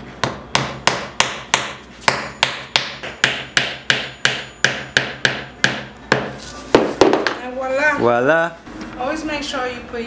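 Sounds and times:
hammer knocking wooden peg: 0.2s - 7.4s.

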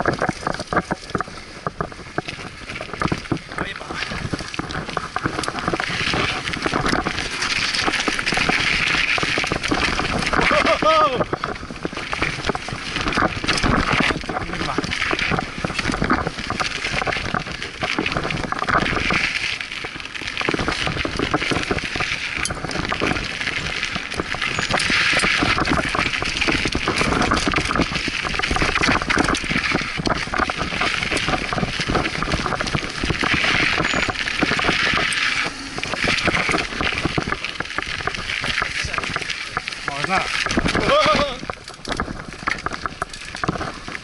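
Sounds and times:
bike rattling: 0.0s - 44.0s
bike tyres crunching over dirt: 0.0s - 44.0s.

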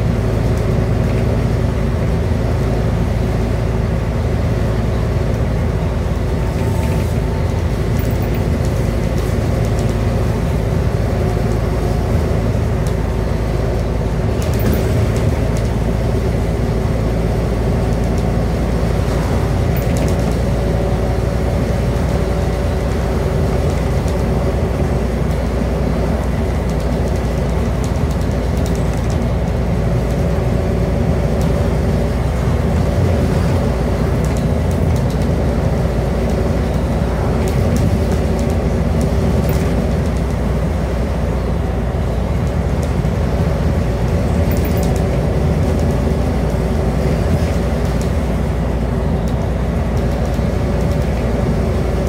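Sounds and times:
bus engine drone: 0.0s - 52.0s
road and tyre noise: 0.0s - 52.0s.

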